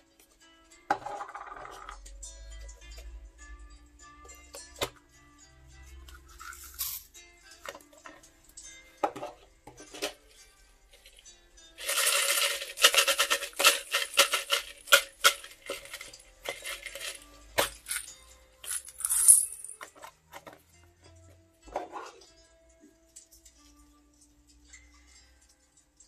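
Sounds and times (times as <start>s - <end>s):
sequins rattling in plastic tub: 11.8s - 19.9s.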